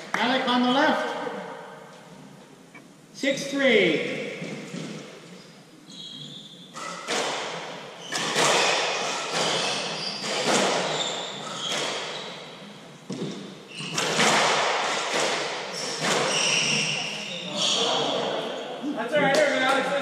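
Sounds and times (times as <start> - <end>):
shoe squeaks: 4.4 - 7.3, 7.9 - 15.0, 15.7 - 18.7
squash ball hitting racquets and walls: 6.7 - 17.3.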